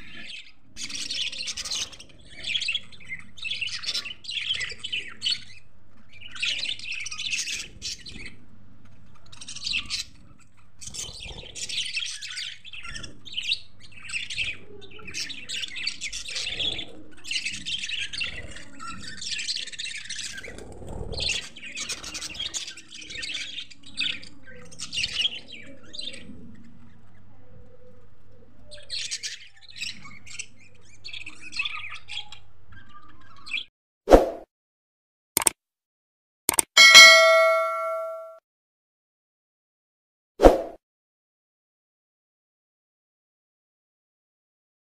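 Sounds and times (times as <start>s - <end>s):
budgerigars chattering and chirping: 9.2s - 20.6s.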